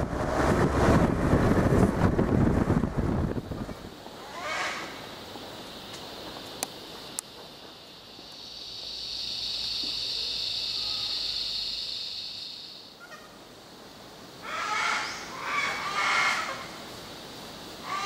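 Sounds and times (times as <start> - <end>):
high insect drone: 0.6 - 18.0
loud bird calls: 14.4 - 16.8.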